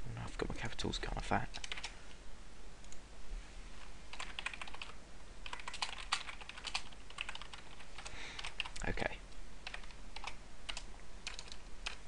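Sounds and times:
computer keyboard typing: 1.5 - 1.9, 4.1 - 8.9, 9.6 - 12.0.

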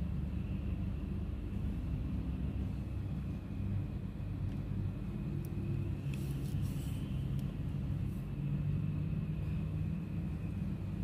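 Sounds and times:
distant city traffic rumble: 0.0 - 11.0.

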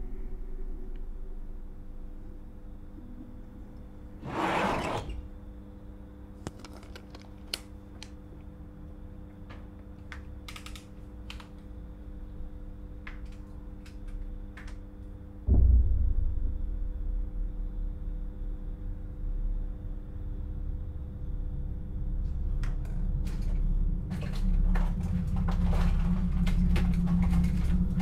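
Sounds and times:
low electrical hum: 0.0 - 28.0
heavy low thump: 15.5 - 20.1.

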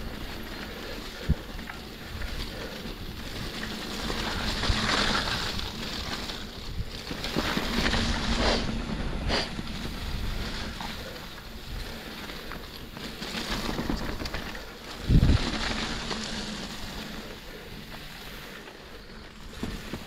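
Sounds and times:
wind buffeting microphone: 13.7 - 16.6.

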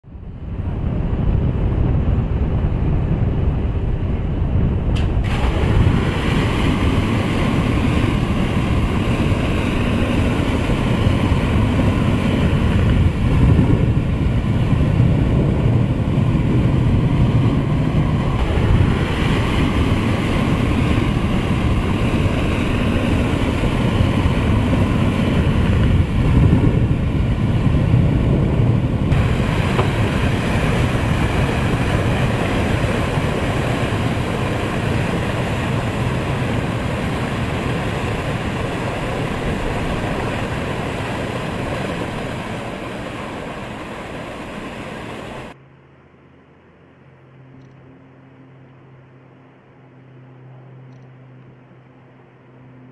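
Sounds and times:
water gushing onto tarmac: 5.2 - 17.7, 29.1 - 45.6.

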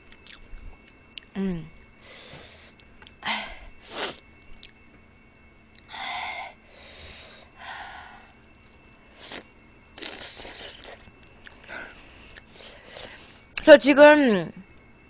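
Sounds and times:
sucking and chewing noises: 0.0 - 3.2, 8.3 - 13.6
small mouth clicks: 4.6 - 4.8.

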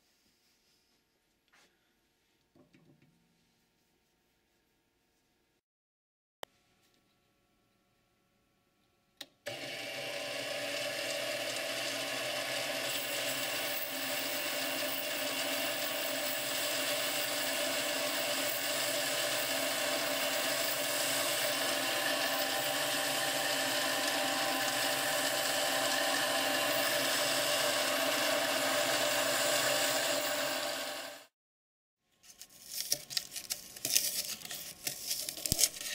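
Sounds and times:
lathe motor hum: 9.5 - 31.3.

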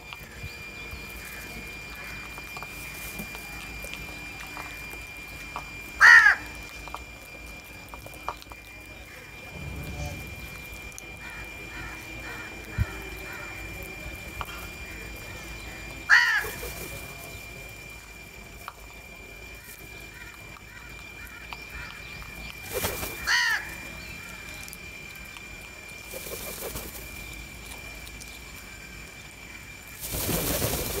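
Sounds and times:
crows cawing: 1.2 - 2.4, 6.0 - 6.6, 8.9 - 9.5, 10.1 - 16.8, 19.5 - 24.8
flock wingbeats: 7.8 - 18.3, 19.0 - 31.0.

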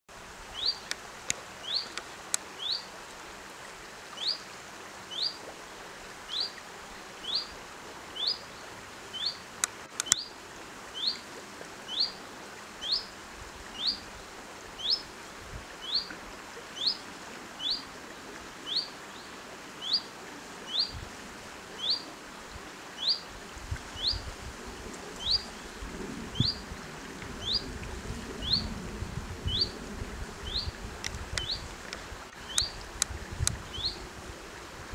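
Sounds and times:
sharp clicks: 9.6 - 10.2.

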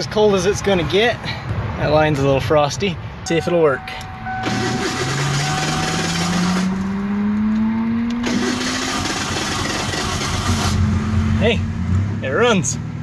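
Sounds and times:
pickup truck engine starting: 4.2 - 7.4, 8.1 - 10.9.

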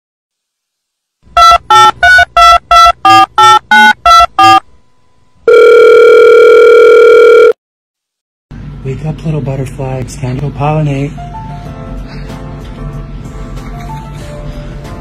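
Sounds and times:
long steady beep: 1.4 - 4.6
short electronic beeps: 1.4 - 4.6.

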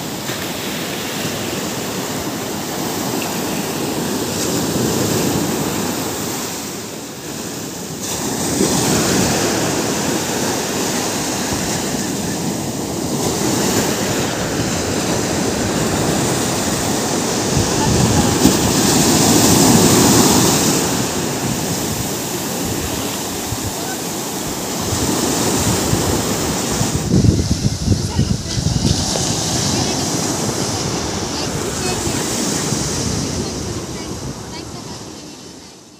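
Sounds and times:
ocean surf breaking on beach: 0.0 - 35.9.

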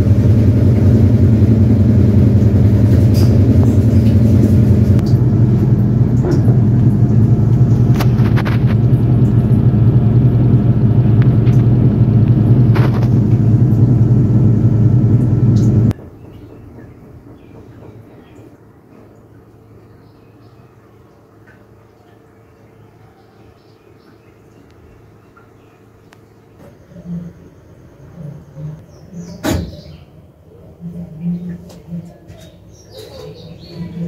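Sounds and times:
washing machine spinning: 0.0 - 34.0
washing machine clicks: 1.8 - 18.1.

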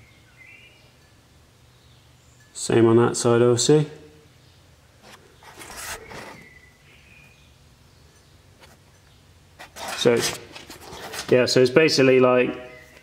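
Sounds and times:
faint rustling and scuffing: 5.0 - 6.6, 9.6 - 11.6.

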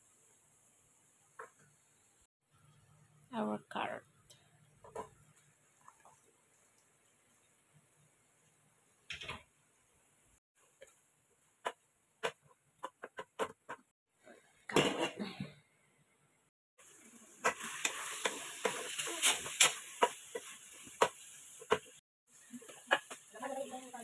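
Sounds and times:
stew sizzling: 4.5 - 12.5, 16.8 - 24.0.

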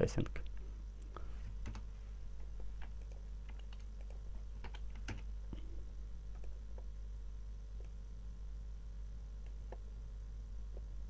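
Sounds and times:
steady low hum: 0.0 - 11.0
keyboard and mouse clicks: 2.8 - 5.3.

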